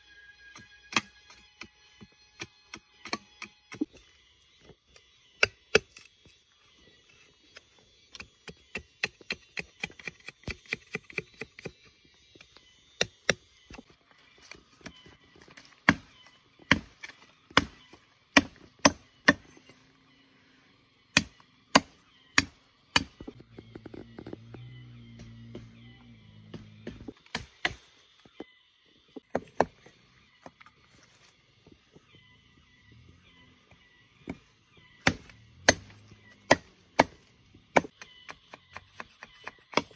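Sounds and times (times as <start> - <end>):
wood being chopped by hand: 0.6 - 1.7, 2.4 - 3.9, 8.2 - 13.8, 15.6 - 19.5, 21.2 - 23.3, 26.5 - 27.8, 35.0 - 39.9.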